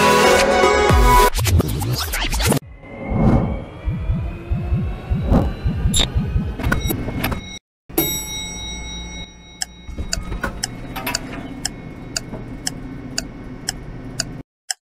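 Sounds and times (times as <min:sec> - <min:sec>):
steady low hum: 0:08.0 - 0:14.4
clock ticking: 0:09.6 - 0:14.8.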